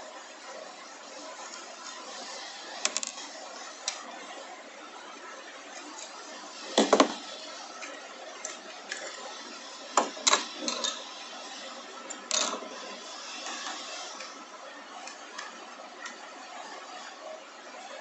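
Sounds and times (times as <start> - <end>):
steady hiss: 0.0 - 18.0
plastic parts clicking and knocking: 2.8 - 3.2, 6.7 - 7.2, 10.0 - 11.0.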